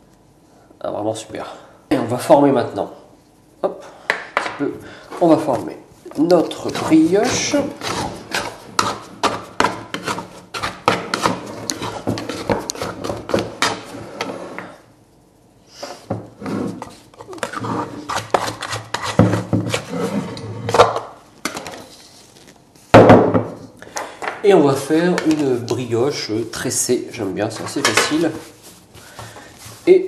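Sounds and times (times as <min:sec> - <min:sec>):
dough scraper scraping a bowl: 0:06.4 - 0:14.7, 0:16.4 - 0:20.8.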